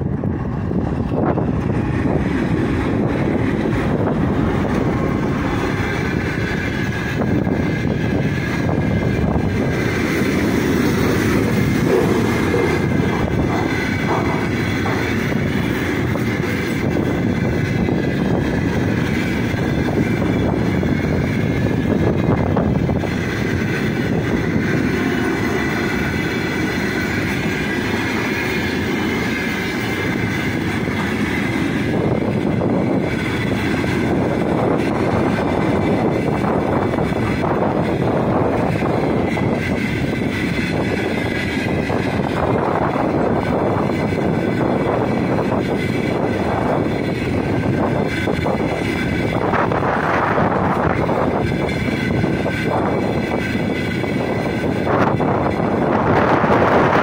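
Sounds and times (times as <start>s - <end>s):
train wheels on rails: 0.0s - 57.0s.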